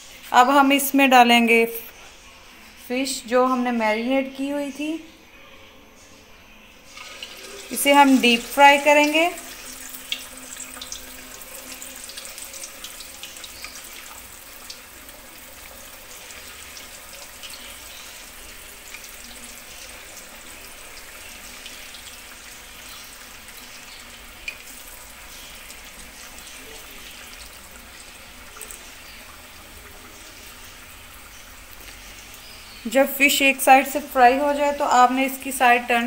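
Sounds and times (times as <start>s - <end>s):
oil crackling and popping: 6.9s - 32.6s
fish sizzling in hot oil: 6.9s - 35.9s.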